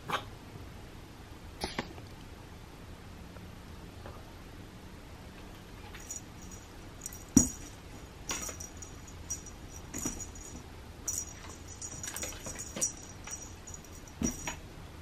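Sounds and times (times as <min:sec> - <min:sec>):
light metallic jingle: 0:05.9 - 0:14.6.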